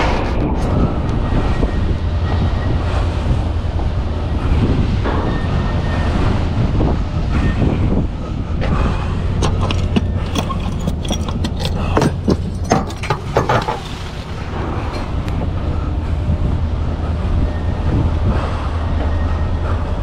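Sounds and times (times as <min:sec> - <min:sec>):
sharp clanks and rattles: 0:08.6 - 0:15.4
truck diesel engine running: 0:09.1 - 0:17.6.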